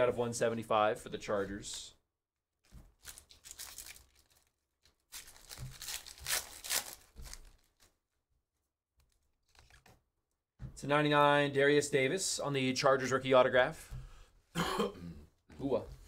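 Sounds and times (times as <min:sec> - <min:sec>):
foil wrapper tearing and crinkling: 0:03.0 - 0:07.9.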